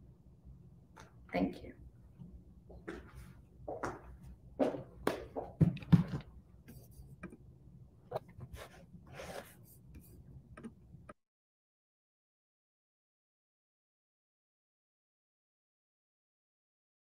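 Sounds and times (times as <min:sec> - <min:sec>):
footsteps: 0:02.7 - 0:06.3.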